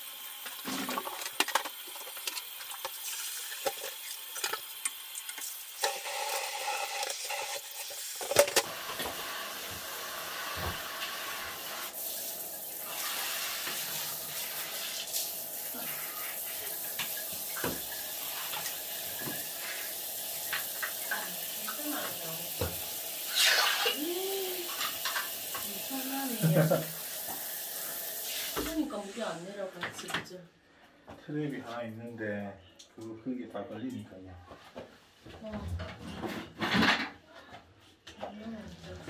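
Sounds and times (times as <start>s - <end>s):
water flowing down floor drain: 0.0s - 30.2s.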